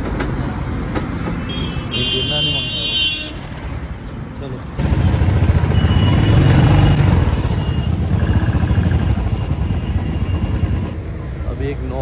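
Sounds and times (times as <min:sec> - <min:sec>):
motorcycle engine running: 0:04.8 - 0:11.1.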